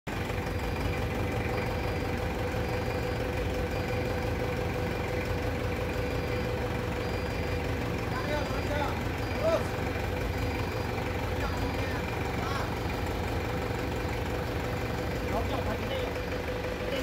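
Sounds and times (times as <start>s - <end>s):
engine idling: 0.1s - 17.0s.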